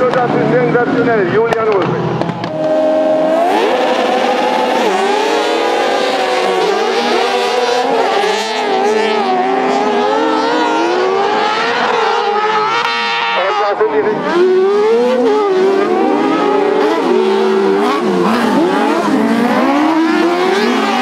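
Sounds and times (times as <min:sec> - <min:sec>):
karts accelerating with revving engines: 0:00.0 - 0:21.0.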